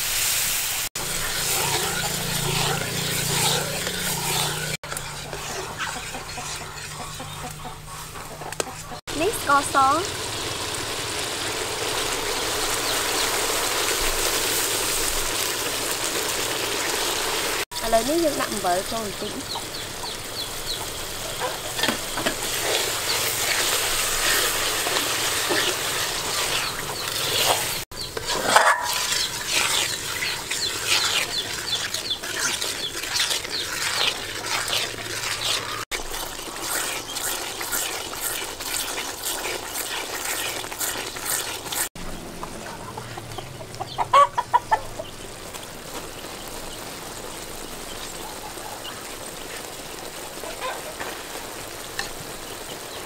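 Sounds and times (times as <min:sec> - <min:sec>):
mixture crackling and bubbling in wok: 0:00.0 - 0:53.0
ladle stirring: 0:01.0 - 0:09.0, 0:21.5 - 0:41.9
chicken clucking: 0:01.6 - 0:09.0, 0:19.5 - 0:21.8, 0:42.3 - 0:45.2.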